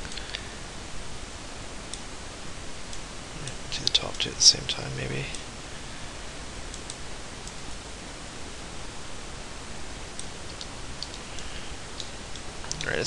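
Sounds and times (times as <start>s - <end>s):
microphone hiss: 0.0s - 13.0s
computer mouse clicks: 6.7s - 7.6s, 10.2s - 13.0s.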